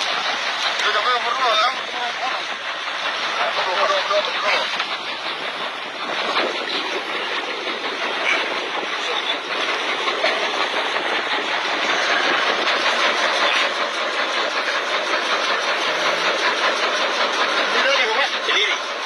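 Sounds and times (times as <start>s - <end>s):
people's voices: 0.0s - 10.8s
boat engine running: 0.0s - 19.0s.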